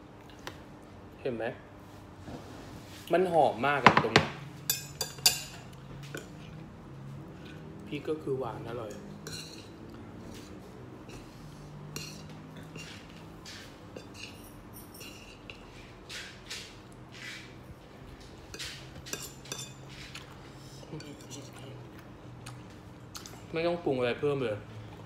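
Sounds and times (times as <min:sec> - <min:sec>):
cutlery clinking on a plate: 0:03.8 - 0:06.4, 0:08.9 - 0:09.8, 0:11.9 - 0:15.7, 0:18.5 - 0:20.3.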